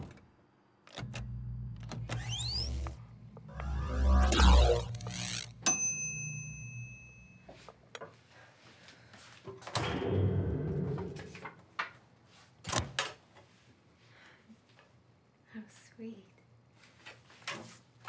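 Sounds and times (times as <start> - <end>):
microwave bell ding: 5.6 - 7.5.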